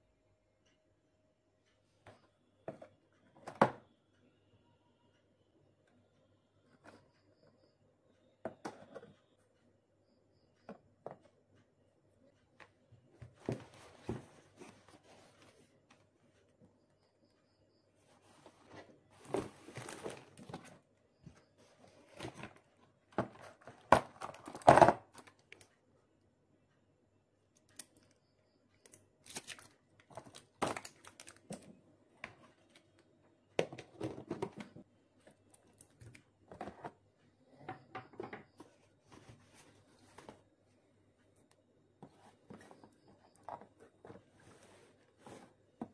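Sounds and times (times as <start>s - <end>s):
rustling and crinkling packaging: 18.7s - 20.8s, 29.2s - 33.0s.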